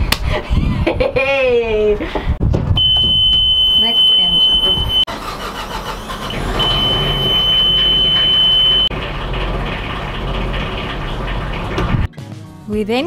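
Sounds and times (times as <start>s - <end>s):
alarm buzzer high beep: 2.8s - 5.1s, 6.6s - 8.9s
diesel engine running: 4.8s - 12.1s.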